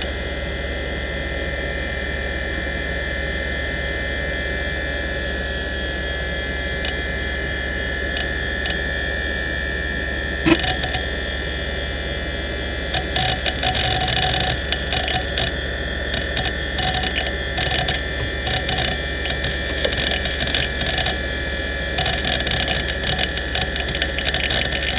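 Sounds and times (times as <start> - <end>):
hard drive spinning whine: 0.0 - 24.9
hard drive seek clicks: 6.8 - 7.1, 8.0 - 8.9, 10.4 - 11.1, 12.9 - 24.9.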